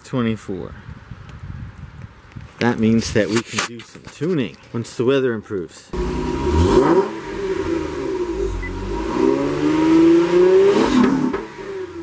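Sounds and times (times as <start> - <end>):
car engine revving: 6.0 - 12.0.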